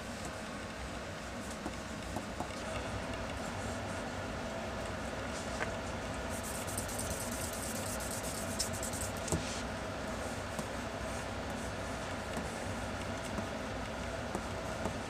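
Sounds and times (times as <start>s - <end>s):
pencil sketching on paper: 6.3s - 9.2s.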